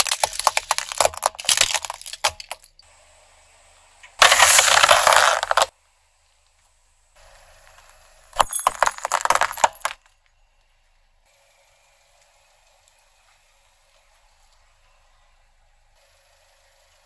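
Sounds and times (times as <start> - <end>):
glass vials crushed cracking: 0.0 - 2.8, 4.2 - 5.7, 8.4 - 10.1.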